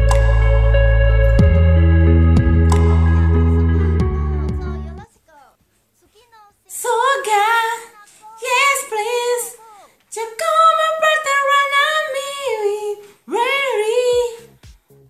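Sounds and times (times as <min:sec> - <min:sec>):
woman singing unaccompanied: 0:06.7 - 0:14.6.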